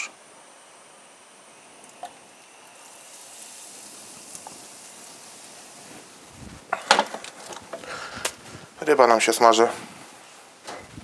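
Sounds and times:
fish sizzling in hot oil: 2.2 - 8.3.

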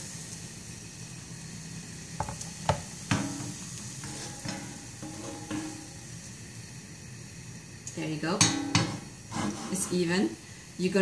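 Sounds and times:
batter sizzling in a pan: 0.0 - 11.0
pan and bowl knocking: 2.2 - 5.9, 8.4 - 9.9.

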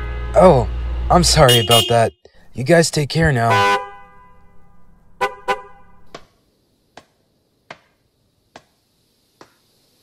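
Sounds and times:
car horn beeps: 1.4 - 2.2, 3.4 - 6.1.

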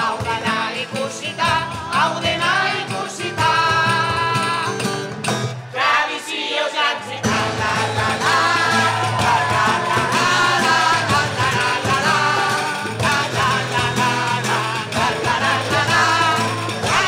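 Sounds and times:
tambourine: 0.0 - 5.7, 7.2 - 17.0
cajon drumming: 0.0 - 6.0, 7.0 - 17.0
acoustic guitar: 0.0 - 6.1, 6.9 - 17.0
group of people singing: 0.0 - 17.0.

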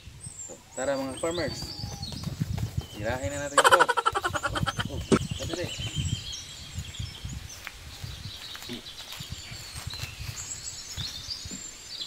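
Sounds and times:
birds chirping: 0.0 - 12.0
wings flapping thumps: 1.4 - 5.2.

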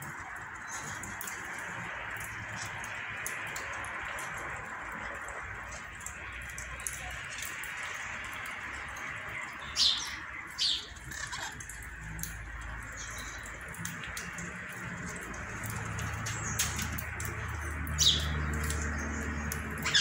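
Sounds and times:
parakeets squawking: 9.8 - 11.9, 19.7 - 20.0.

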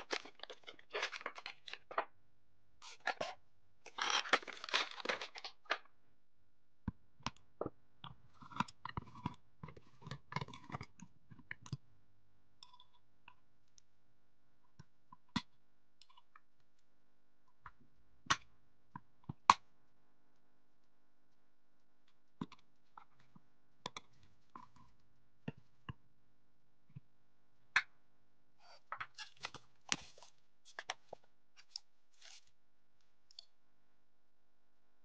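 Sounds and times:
plastic packaging crinkling: 0.0 - 2.0, 3.9 - 5.8.

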